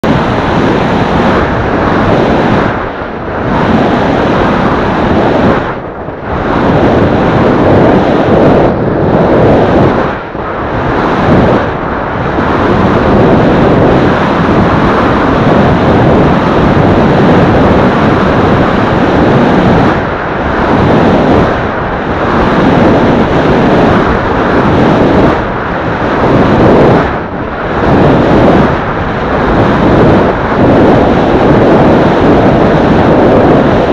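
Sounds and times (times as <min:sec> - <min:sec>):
wind buffeting on microphone: 0:00.0 - 0:33.9.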